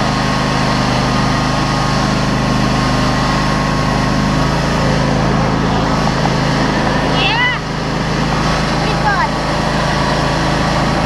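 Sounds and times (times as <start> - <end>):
riding lawn mower engine running: 0.0 - 11.0.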